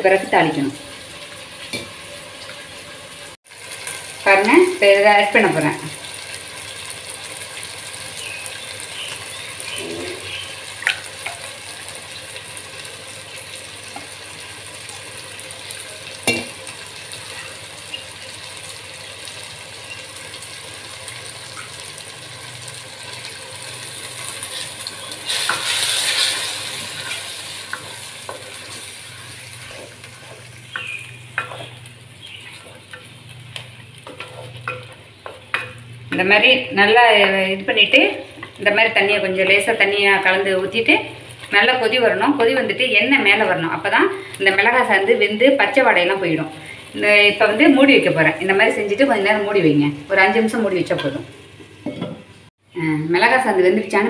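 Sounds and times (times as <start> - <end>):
paste sizzling in oil: 5.9 - 36.0
wooden spatula scraping and stirring: 25.3 - 35.7.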